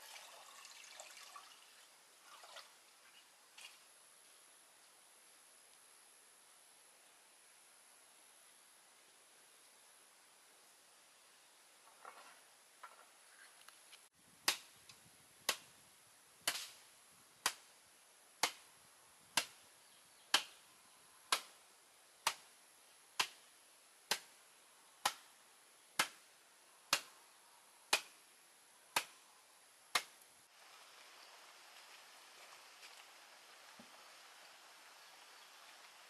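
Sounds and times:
outdoor background noise: 0.0s - 36.0s
wooden pole pounding wood chips: 16.4s - 16.8s, 19.4s - 19.6s, 29.9s - 30.2s.

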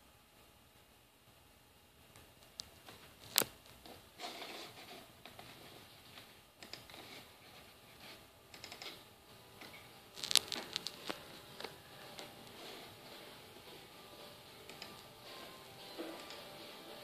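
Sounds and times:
computer mouse clicks: 6.6s - 7.2s, 8.5s - 9.0s, 14.6s - 15.1s.

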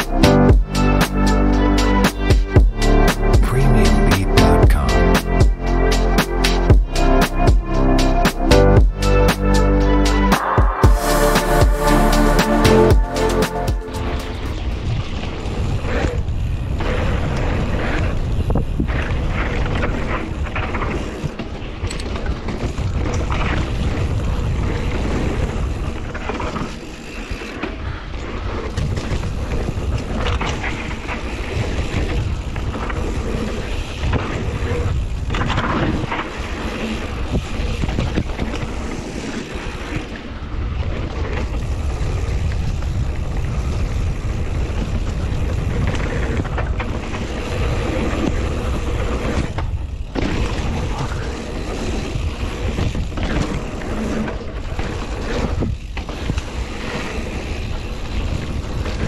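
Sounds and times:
wind buffeting microphone: 27.8s - 59.0s
bike knocks and rattles: 49.2s - 56.6s.

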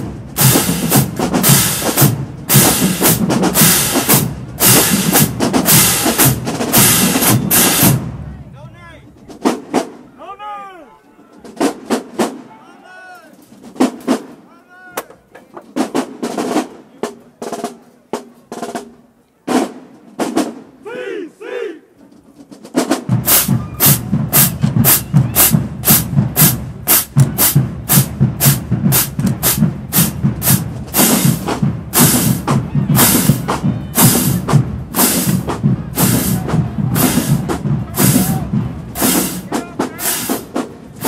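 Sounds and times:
snare drums: 0.0s - 8.3s, 9.0s - 10.4s, 11.2s - 12.6s, 13.3s - 20.8s, 22.0s - 41.0s
bass drums: 0.0s - 8.4s, 22.9s - 41.0s.

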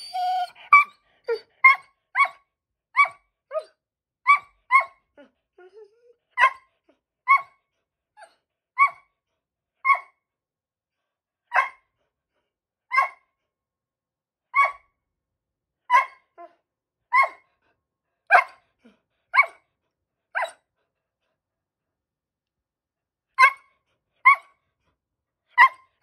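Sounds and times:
dog yelping: 0.0s - 2.4s, 3.0s - 3.7s, 4.3s - 5.0s, 5.6s - 6.7s, 7.3s - 7.6s, 8.8s - 9.1s, 9.8s - 10.2s, 12.9s - 13.2s, 14.6s - 14.9s, 15.9s - 16.5s, 17.1s - 17.5s, 18.3s - 18.6s, 19.4s - 19.6s, 20.4s - 20.6s, 23.4s - 24.5s
dog barking: 6.4s - 6.7s, 9.8s - 10.2s, 11.5s - 11.9s, 12.9s - 13.3s, 15.9s - 16.3s, 18.3s - 18.6s, 19.3s - 19.6s, 20.3s - 20.6s, 23.4s - 24.5s.

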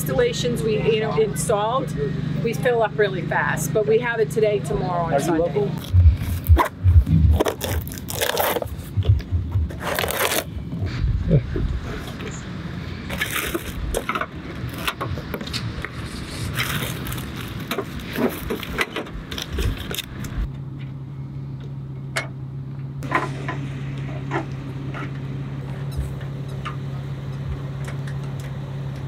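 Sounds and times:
steady low hum: 0.0s - 29.0s
cardboard and plastic scraping: 7.3s - 9.0s, 9.6s - 10.5s, 13.1s - 20.4s
packing paper rustling: 7.4s - 8.8s, 9.8s - 10.5s, 16.0s - 20.1s.

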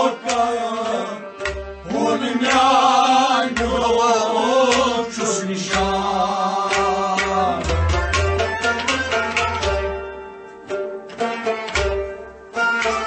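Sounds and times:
man singing: 0.0s - 7.9s
plucked string accompaniment: 0.0s - 13.0s.

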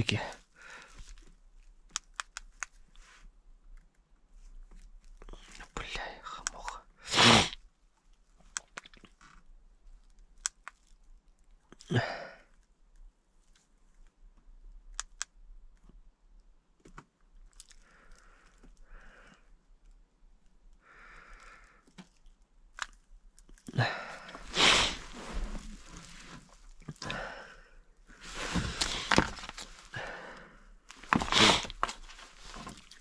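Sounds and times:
rustling and scraping of paper: 24.4s - 26.7s, 28.2s - 30.0s, 31.0s - 33.0s.

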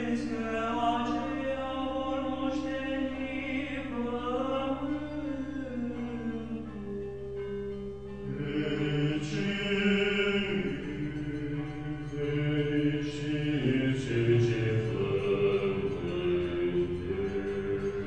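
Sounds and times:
voices singing chant: 8.3s - 18.0s.

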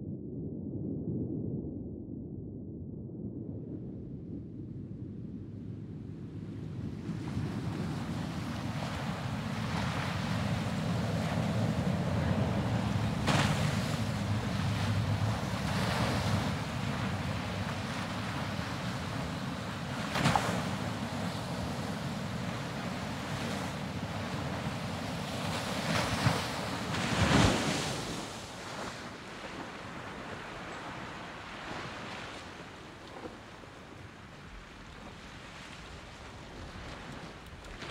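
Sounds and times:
wind buffeting microphone: 0.8s - 37.9s
sea water churning and splashing: 6.7s - 37.9s.

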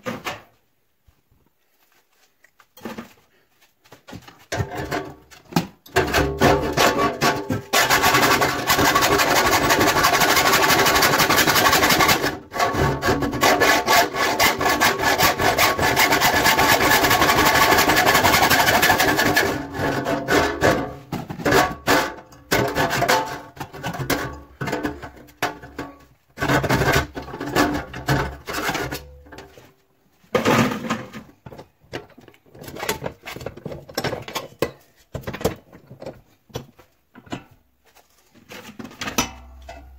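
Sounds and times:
hacksaw cutting sheet metal: 7.8s - 21.0s.

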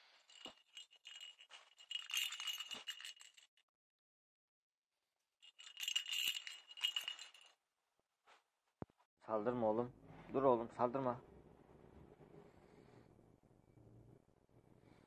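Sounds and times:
bell ball toy jingling: 0.3s - 3.5s, 5.4s - 7.5s.

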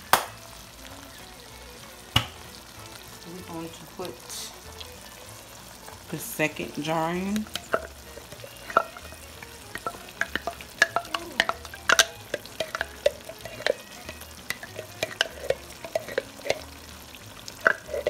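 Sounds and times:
light sizzle from pan: 0.0s - 18.0s
wooden spoon scraping a jar: 14.5s - 16.7s.

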